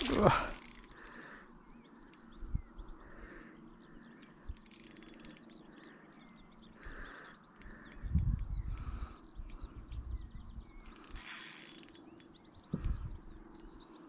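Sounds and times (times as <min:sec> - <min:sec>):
small birds chirping: 0:00.0 - 0:14.0
fishing reel clicks: 0:04.2 - 0:06.0, 0:10.8 - 0:12.3.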